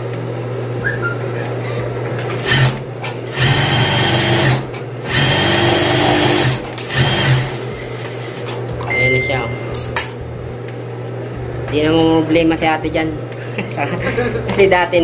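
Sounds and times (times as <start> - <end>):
sewing machine stitching: 2.4 - 7.6
sewing machine humming: 2.4 - 8.4.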